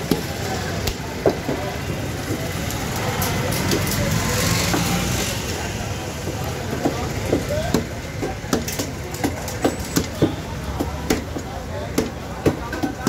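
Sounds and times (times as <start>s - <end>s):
street traffic rumble: 0.0s - 13.0s
cleaver chopping on wooden block: 6.7s - 13.0s.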